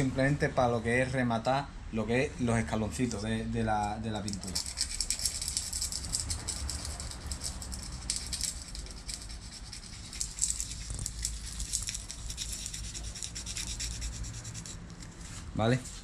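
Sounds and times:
sandpaper scratching on paint: 4.4s - 16.0s.

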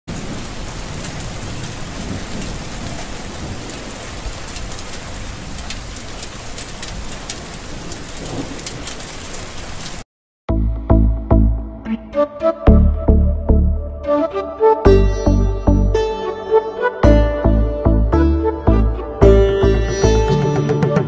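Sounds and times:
steady rain: 0.1s - 10.1s.

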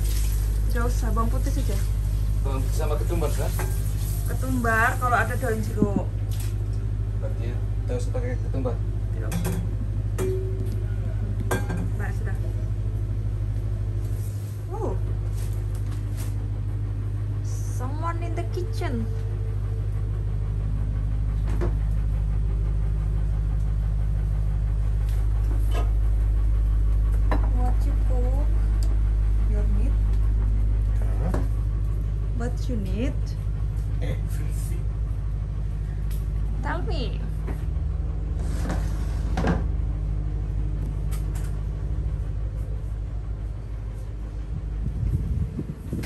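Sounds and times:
boat engine droning: 0.0s - 46.0s.

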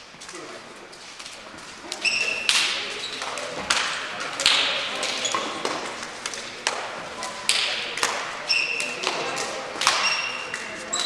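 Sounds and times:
shoe squeaks: 1.9s - 3.4s, 5.1s - 5.7s, 8.4s - 9.3s, 9.9s - 11.0s
hand slaps echoing: 1.9s - 11.0s.

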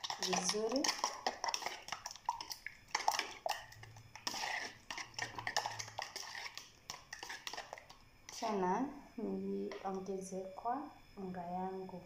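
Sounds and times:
whisk clicking against bowl: 0.0s - 8.5s.

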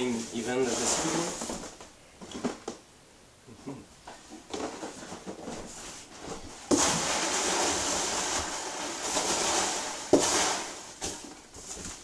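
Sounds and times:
packing material scraping: 0.0s - 1.8s, 4.8s - 12.0s
hands rustling in cardboard box: 4.6s - 12.0s.

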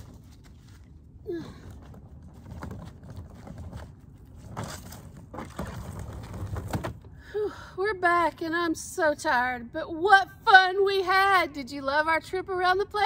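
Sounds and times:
suitcase wheels rumbling: 1.6s - 7.1s.

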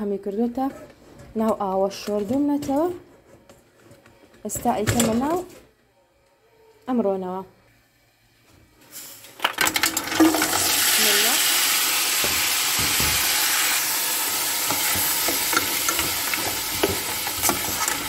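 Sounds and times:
loud sizzle in hot oil: 8.9s - 18.0s
nuts clattering into pot: 9.2s - 18.0s.

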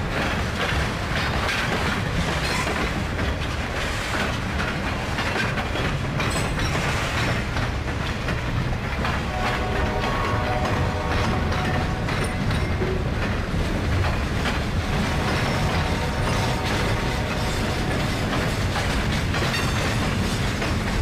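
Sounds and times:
train rumble: 0.0s - 21.0s
train wheels clickety-clack: 0.0s - 21.0s.

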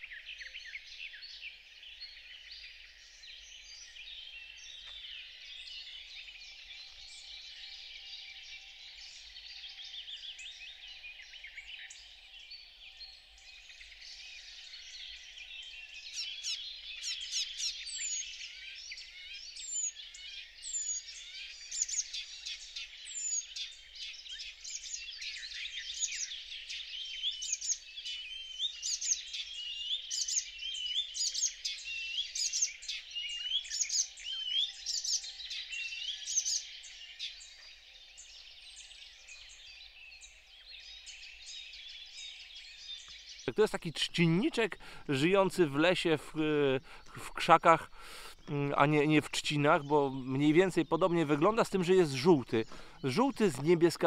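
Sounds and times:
chorus of songbirds: 0.0s - 54.0s
warbler singing: 0.0s - 54.0s.

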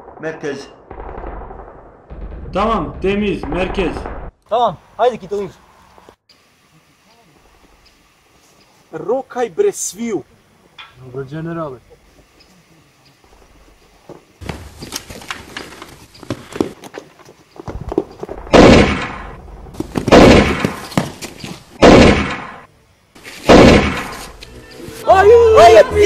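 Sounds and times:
loud rifle shots: 0.8s - 4.4s, 18.4s - 19.4s, 20.0s - 20.9s, 21.8s - 22.6s, 23.4s - 24.2s.

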